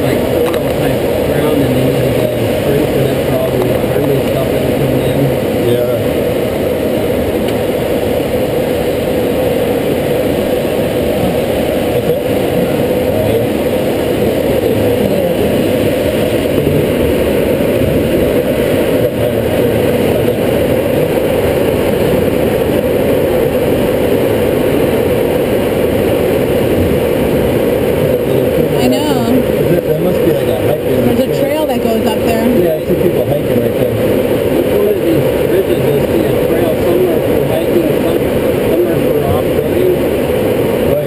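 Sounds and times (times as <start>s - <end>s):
airflow rushing in glider cockpit: 0.0s - 41.0s.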